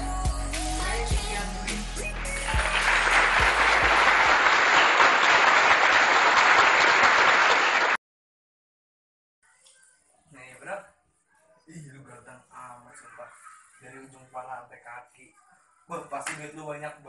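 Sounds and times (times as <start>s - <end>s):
background music with a beat: 0.0s - 4.2s
applause: 2.1s - 8.0s.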